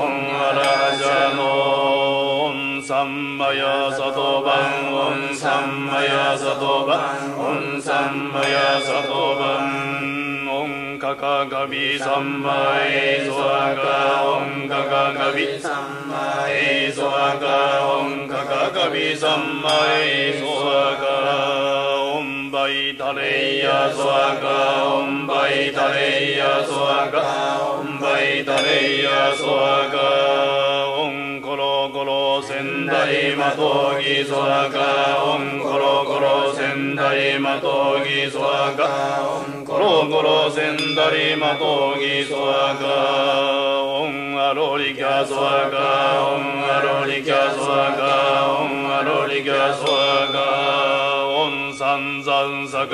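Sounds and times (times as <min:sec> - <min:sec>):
person chanting: 0:00.0 - 0:52.9.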